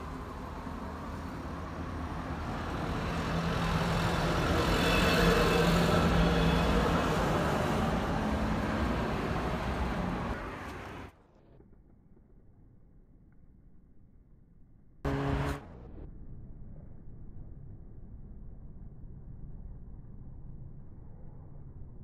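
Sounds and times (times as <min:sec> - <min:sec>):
car passing on road: 0:00.0 - 0:11.2, 0:15.1 - 0:15.9.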